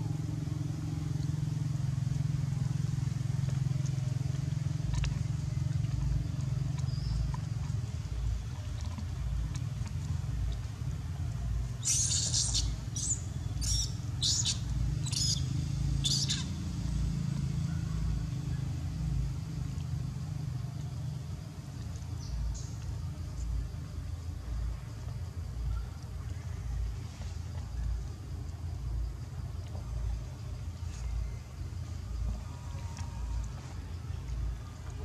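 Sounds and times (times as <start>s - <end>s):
throbbing motor hum: 0.0s - 35.0s.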